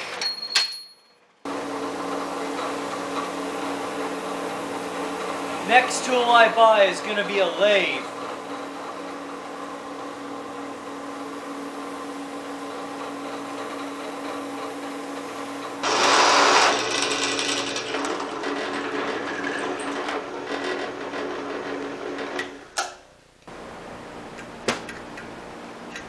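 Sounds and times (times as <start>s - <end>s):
harsh cutting noise: 1.5s - 9.6s, 15.8s - 22.6s
drill press motor running: 1.5s - 22.8s.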